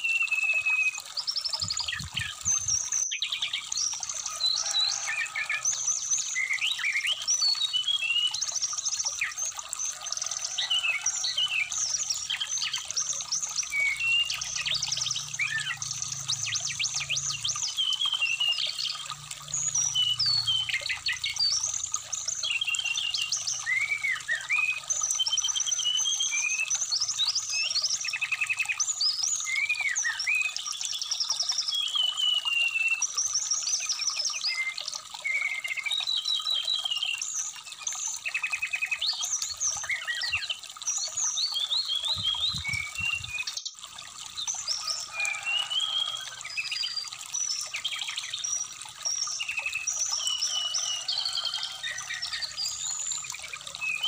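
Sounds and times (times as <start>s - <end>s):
bird singing whistles and trills: 0.0s - 4.1s, 5.4s - 9.6s, 22.4s - 43.8s
stream trickling: 0.0s - 54.0s.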